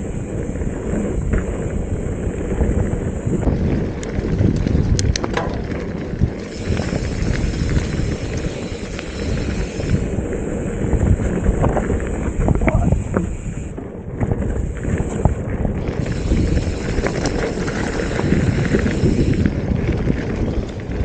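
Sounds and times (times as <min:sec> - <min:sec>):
bike clicks and rattles: 0:00.0 - 0:21.0
tyres rumbling on trail: 0:00.0 - 0:21.0
wind buffeting microphone: 0:00.0 - 0:21.0.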